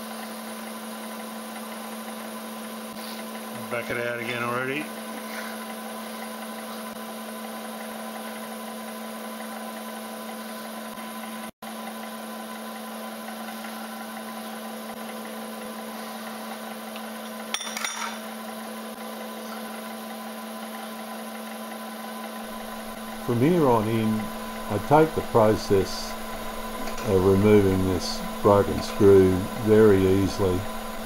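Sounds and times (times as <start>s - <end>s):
milling machine hum: 18.3s - 31.0s
scratchy cutting noise: 22.5s - 30.8s.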